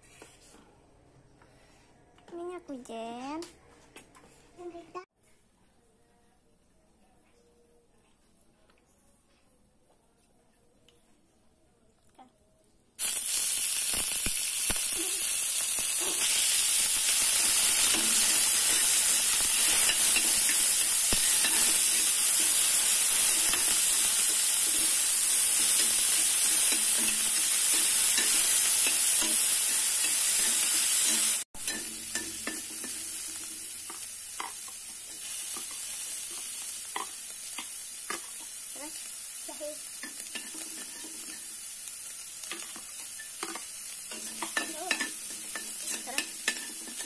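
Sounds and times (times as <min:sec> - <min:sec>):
beef sizzling in a pan: 0:13.0 - 0:47.0
spatula scraping and tapping pan: 0:24.6 - 0:38.6, 0:40.0 - 0:41.6, 0:42.4 - 0:47.0.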